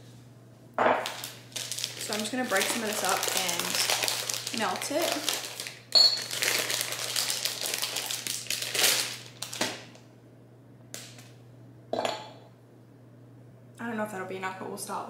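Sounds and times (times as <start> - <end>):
wrapper crinkling: 1.0 - 10.0.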